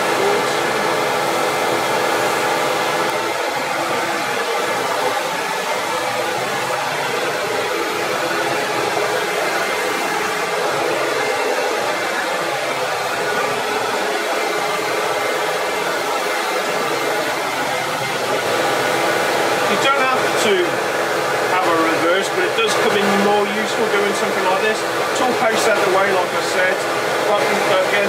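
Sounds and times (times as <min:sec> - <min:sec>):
dust extractor running: 0:00.0 - 0:28.0.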